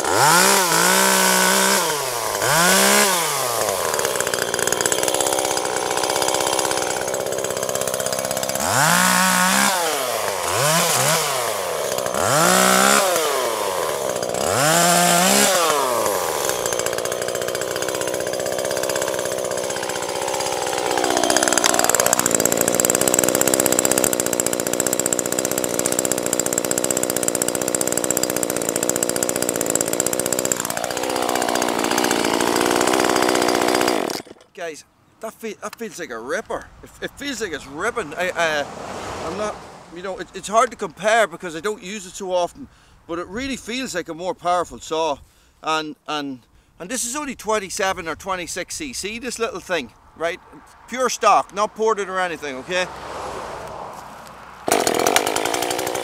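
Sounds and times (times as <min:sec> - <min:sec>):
chainsaw engine revving: 0:00.0 - 0:34.5, 0:37.7 - 0:40.6, 0:51.5 - 0:56.0.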